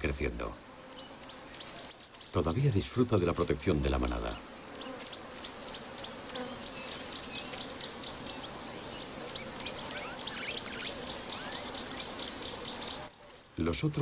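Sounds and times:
insects buzzing: 0.0 - 14.0
small ticks: 4.0 - 8.4.

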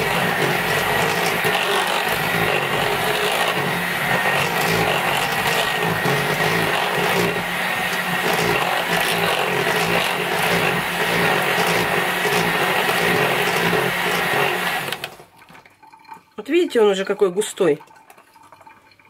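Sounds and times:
electric hand mixer whining: 0.0 - 15.2.

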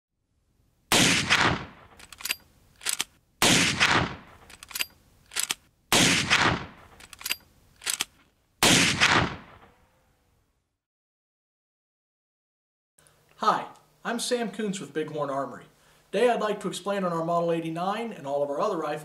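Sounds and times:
rifle shots echoing: 0.9 - 2.0, 3.4 - 4.5, 5.9 - 7.0, 8.6 - 9.8
rifle lever metallic clacks: 2.0 - 3.1, 4.4 - 5.6, 7.0 - 8.2.

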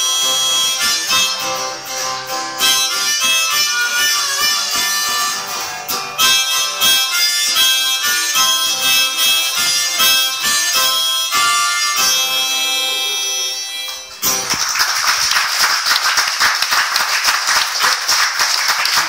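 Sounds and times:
acoustic guitar: 0.0 - 15.4
harmonica: 0.0 - 15.4
audience applause: 13.9 - 19.0.

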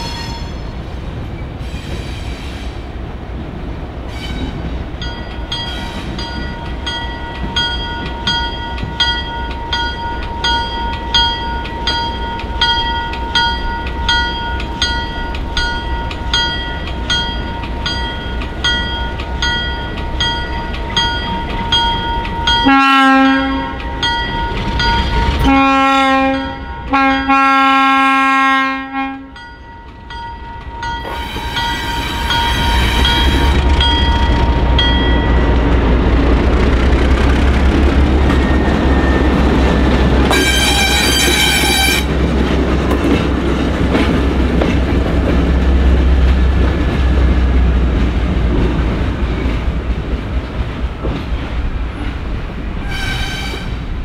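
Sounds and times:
locomotive bell ringing: 5.0 - 27.8, 28.9 - 36.5, 37.7 - 42.2
locomotive air horn blasts: 22.6 - 23.8, 25.4 - 29.4, 40.3 - 42.1, 52.8 - 53.8
diesel engine rumbling: 32.2 - 51.2.

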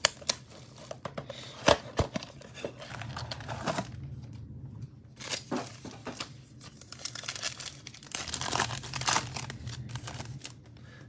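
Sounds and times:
foil pack tearing and crinkling: 5.2 - 10.6.

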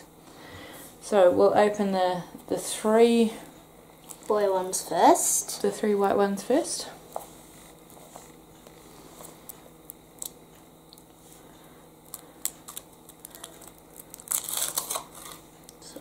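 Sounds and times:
foil wrapper crinkling: 12.0 - 15.7
foil rustle: 12.1 - 15.6.

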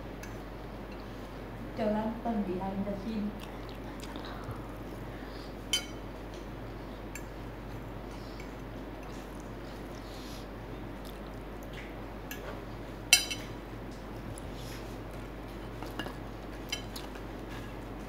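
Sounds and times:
fork clinking on ceramic plate: 5.7 - 6.0, 13.1 - 13.5.

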